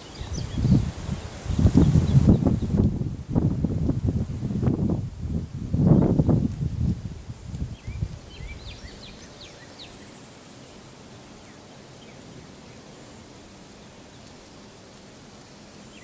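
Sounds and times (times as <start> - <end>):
small bird chirping: 0.0 - 0.9, 7.7 - 13.1
insects: 0.0 - 16.0.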